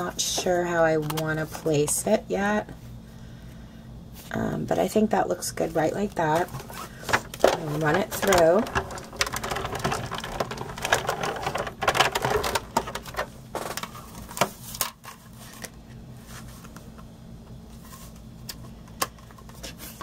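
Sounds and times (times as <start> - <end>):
hand-cranked machine rattling: 7.4 - 13.7.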